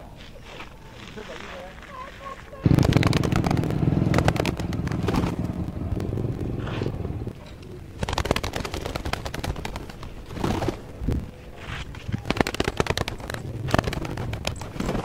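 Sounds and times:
pigeon wings flapping: 2.2s - 7.0s, 7.9s - 15.0s.

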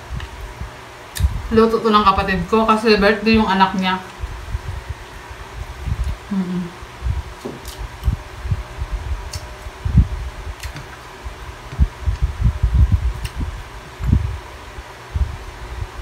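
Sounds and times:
electric fan running: 0.0s - 16.0s
low thumps from eating: 11.6s - 14.3s.

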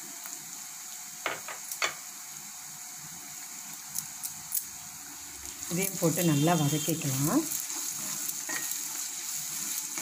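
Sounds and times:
food sizzling in oil: 0.0s - 10.0s.

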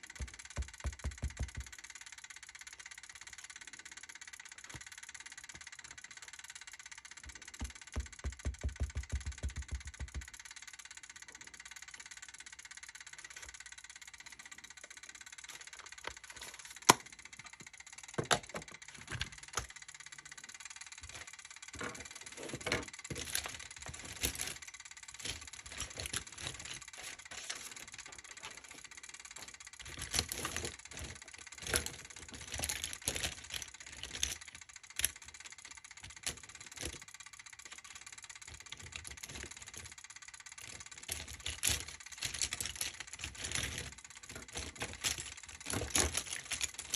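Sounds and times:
sharp clicks and knocks: 0.0s - 1.8s, 7.2s - 10.4s, 16.8s - 19.8s.

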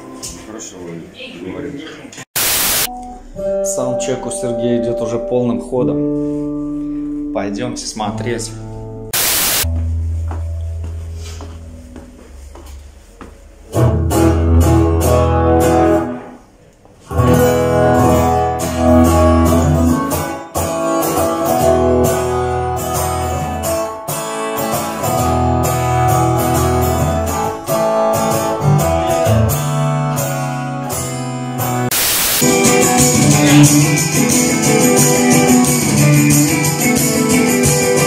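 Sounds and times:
acoustic guitar strumming chords: 17.1s - 38.0s.

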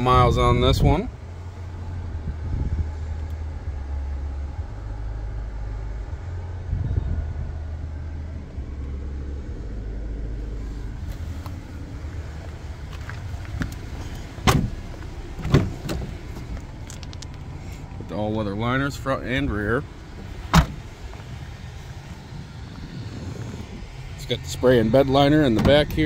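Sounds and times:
low steady hum: 0.0s - 26.0s
car door handle clicks: 14.4s - 14.8s, 20.5s - 20.8s.

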